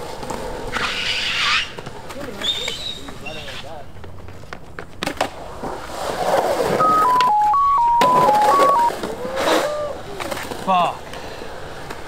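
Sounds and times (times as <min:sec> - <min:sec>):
electronic dialing beeps: 0:06.8 - 0:09.0.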